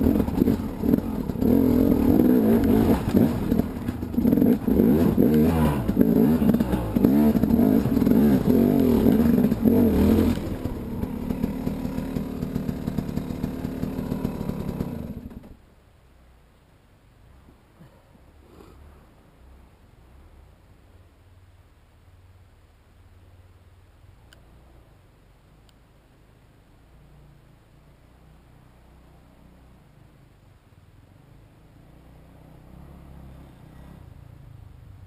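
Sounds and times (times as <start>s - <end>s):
motorcycle engine revving: 0.0s - 15.6s, 31.6s - 34.4s.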